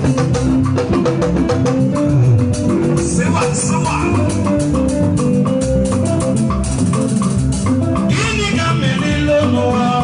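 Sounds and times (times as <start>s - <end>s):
drum kit beat: 0.0s - 10.0s
live band music: 0.0s - 10.0s
man singing into microphone: 3.0s - 4.3s, 8.1s - 10.0s.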